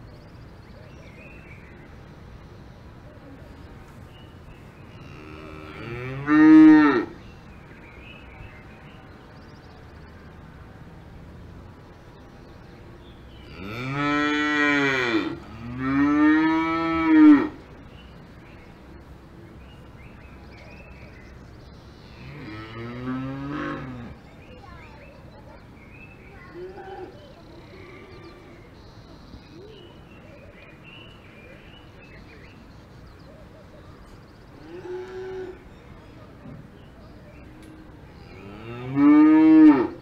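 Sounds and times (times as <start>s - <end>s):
faint pasture background: 0.0s - 40.0s
cows mooing: 5.0s - 7.2s, 13.5s - 17.6s, 38.3s - 40.0s.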